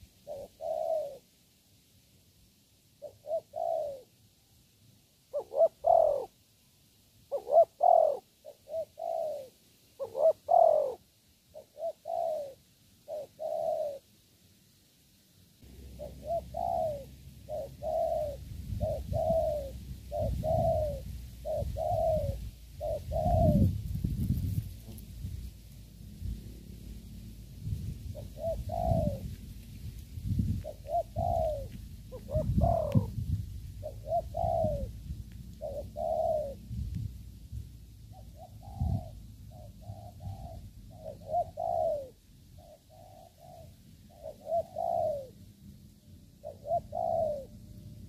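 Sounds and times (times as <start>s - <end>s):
dove cooing: 0.0s - 1.3s, 3.0s - 4.2s, 5.3s - 6.4s, 7.3s - 14.1s, 15.6s - 25.0s, 26.4s - 29.6s, 30.3s - 37.1s, 38.0s - 45.5s, 46.3s - 48.0s
wind rumble on microphone: 16.0s - 41.7s.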